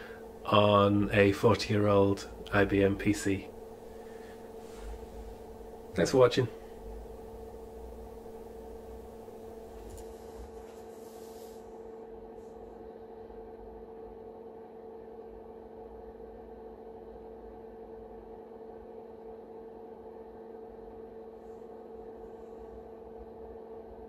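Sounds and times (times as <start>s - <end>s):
computer electrical hum: 0.0s - 24.0s.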